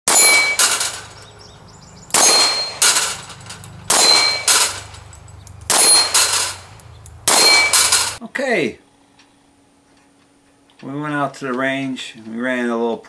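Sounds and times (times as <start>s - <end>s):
pistol shots: 0.1s - 1.2s, 2.0s - 3.3s, 3.9s - 5.0s, 5.6s - 8.2s
steel plates ringing: 0.1s - 8.2s.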